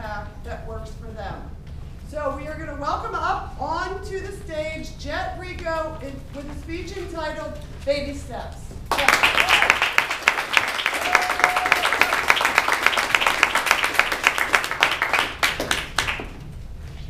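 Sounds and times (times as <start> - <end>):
audience applauding: 8.9 - 16.4.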